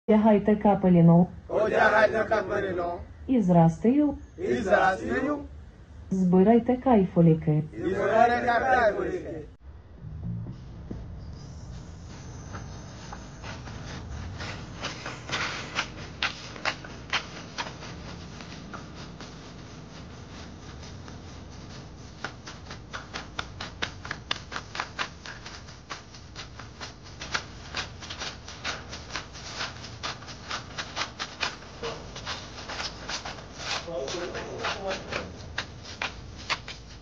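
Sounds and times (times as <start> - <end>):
low steady rumble: 0.1 - 16.2.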